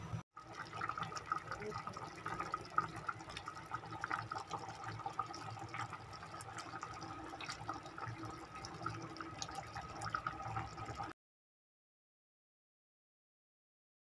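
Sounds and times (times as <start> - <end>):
stew bubbling in a pot: 0.3 - 11.1.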